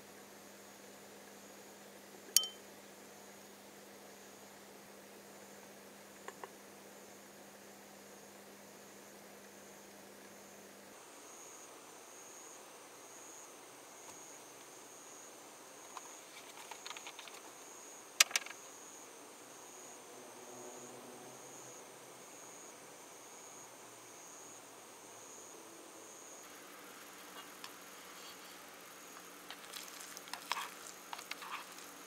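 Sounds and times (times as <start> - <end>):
faint high-pitched chirp: 2.4 - 2.6.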